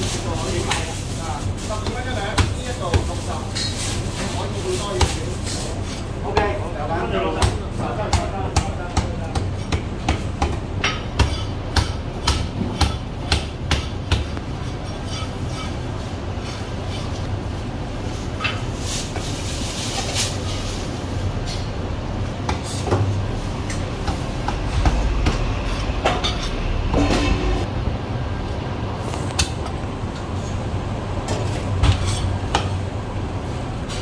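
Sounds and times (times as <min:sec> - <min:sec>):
low rumble: 0:23.3 - 0:28.9.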